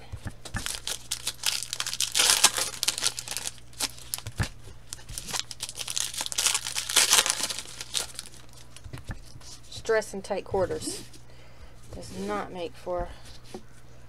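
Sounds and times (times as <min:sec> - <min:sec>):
wrappers tearing and crinkling: 0:00.6 - 0:08.8.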